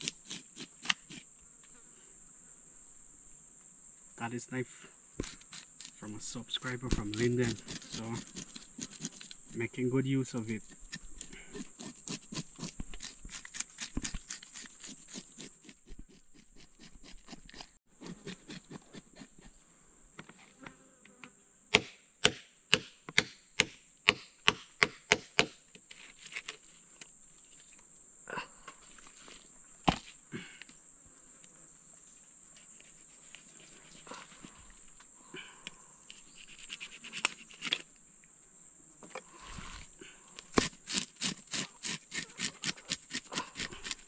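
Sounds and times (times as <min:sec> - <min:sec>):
high insect drone: 0:00.0 - 0:15.5, 0:24.4 - 0:44.0
knife scraping fish scales: 0:05.2 - 0:09.6, 0:10.7 - 0:18.8, 0:36.1 - 0:37.9, 0:40.5 - 0:44.0
sharp knife chops: 0:21.7 - 0:25.6, 0:40.5 - 0:44.0.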